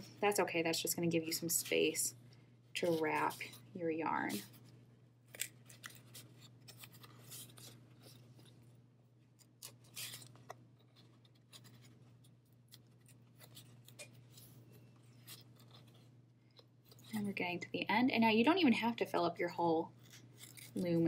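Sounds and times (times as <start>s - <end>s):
steady low hum: 0.0s - 21.0s
yarn scratching on cardboard: 2.8s - 4.6s.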